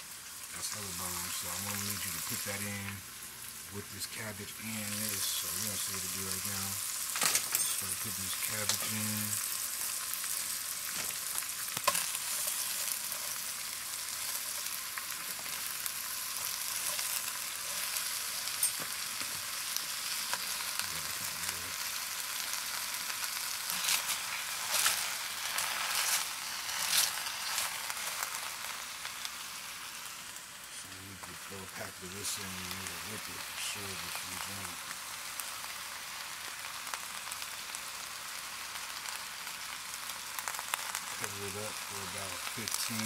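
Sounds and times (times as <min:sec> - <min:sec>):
food sizzling in hot fat: 0:00.0 - 0:43.0
fat popping and crackling: 0:10.4 - 0:29.1.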